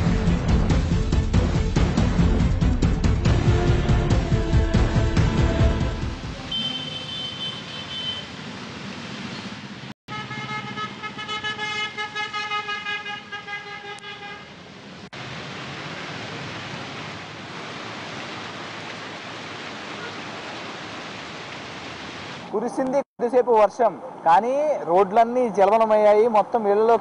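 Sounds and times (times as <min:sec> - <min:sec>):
traffic: 0:04.8 - 0:27.0
traffic on waterlogged road: 0:04.8 - 0:27.0
vehicle horn honking: 0:06.4 - 0:08.3, 0:10.1 - 0:14.5.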